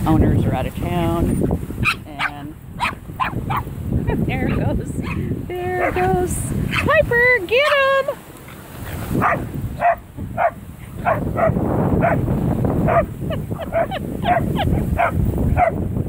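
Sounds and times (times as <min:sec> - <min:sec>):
dogs barking and yipping: 0:01.8 - 0:03.8, 0:04.4 - 0:15.9.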